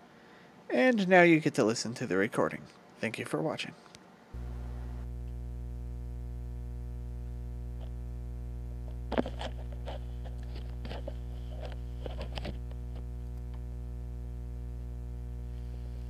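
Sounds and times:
steady electrical hum: 3.9 - 16.0.

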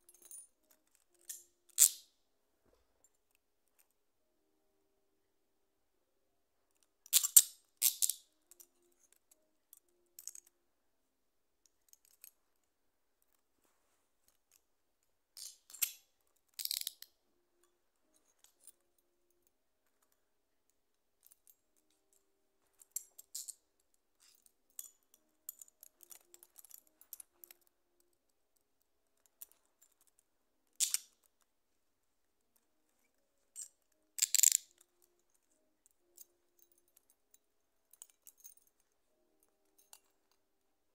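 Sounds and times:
handcuffs clicking and ratcheting: 0.1 - 2.1, 6.7 - 10.5, 11.7 - 12.4, 15.4 - 17.2, 22.7 - 28.2, 29.2 - 31.4, 33.1 - 40.4.

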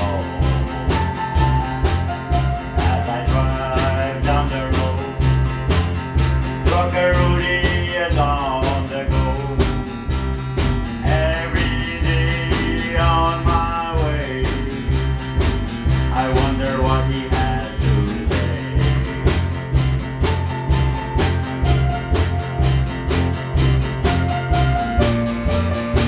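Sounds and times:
drum kit beat: 0.0 - 26.0
electric bass notes: 0.0 - 26.0
guitars: 0.0 - 26.0
wavering melody line: 20.7 - 23.4.

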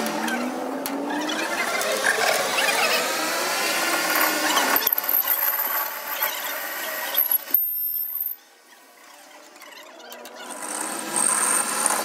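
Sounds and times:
metal lathe cutting steel: 1.6 - 7.5, 10.4 - 12.0.

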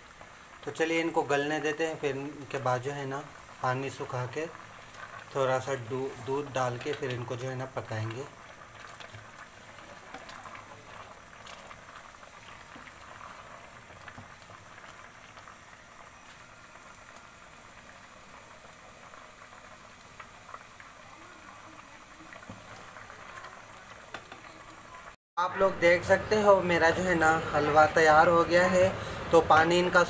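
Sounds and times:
water bubbling with crackles: 3.2 - 25.2.

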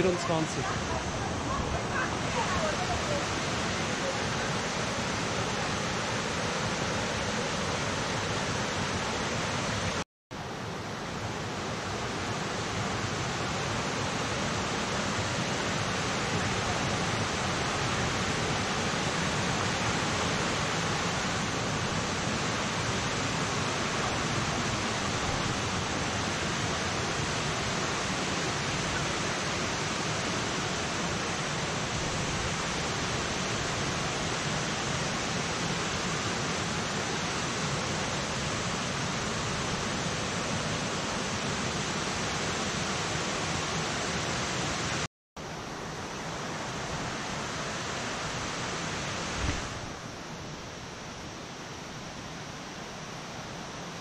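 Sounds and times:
waterfall rushing: 0.0 - 10.0, 10.6 - 51.5.

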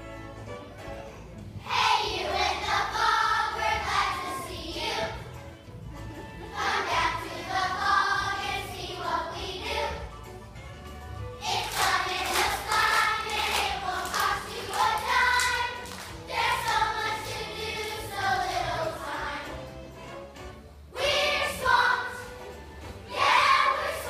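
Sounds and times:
children singing together: 1.6 - 5.2, 6.5 - 10.1, 11.4 - 19.7, 20.9 - 22.5, 23.1 - 24.0.

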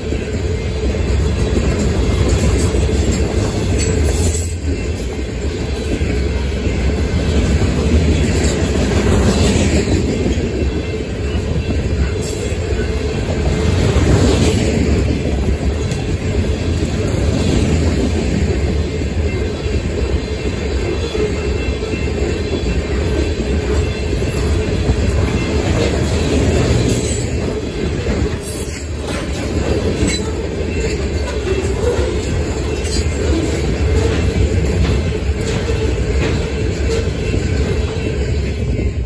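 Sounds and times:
train wheels rumbling on rails: 0.0 - 39.0.

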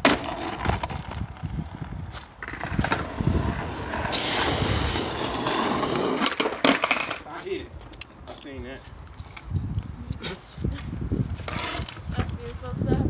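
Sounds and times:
skateboard clack: 0.0 - 1.3, 2.4 - 7.3
skateboard wheels rolling on concrete: 0.0 - 13.0.

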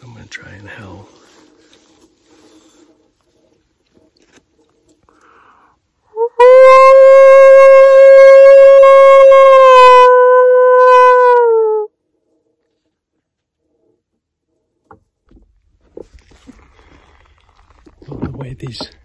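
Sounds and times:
man howling like a wolf: 6.1 - 11.9.

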